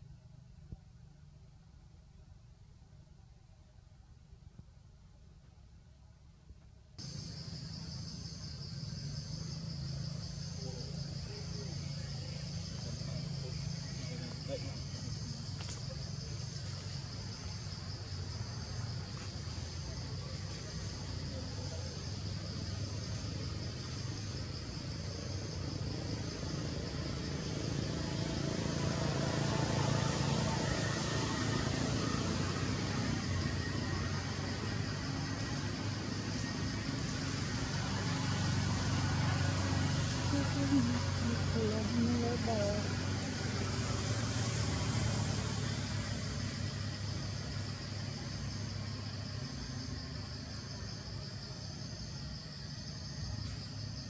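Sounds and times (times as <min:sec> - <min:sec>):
low steady rumble: 0:00.0 - 0:38.0
insects chorus: 0:07.0 - 0:54.0
vehicle engine humming: 0:07.0 - 0:54.0.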